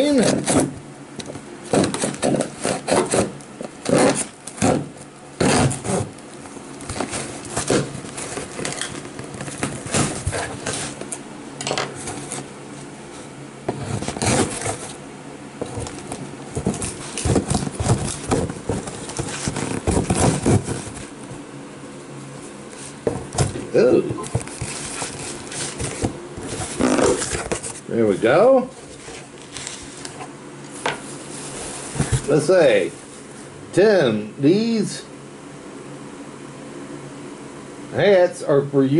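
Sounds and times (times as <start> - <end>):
faint steady hum: 0.0 - 38.9
knife cutting packing tape: 0.1 - 0.8, 1.7 - 6.1, 6.8 - 11.0, 13.8 - 15.0, 24.3 - 27.6
tape and cardboard tearing: 0.2 - 6.2, 6.8 - 11.2, 13.7 - 15.0, 15.6 - 21.1, 24.2 - 27.8.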